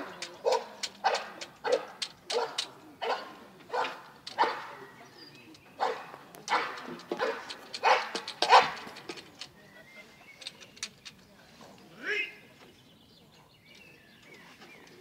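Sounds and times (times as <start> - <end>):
dog barking: 0.4 - 4.7, 5.8 - 8.8.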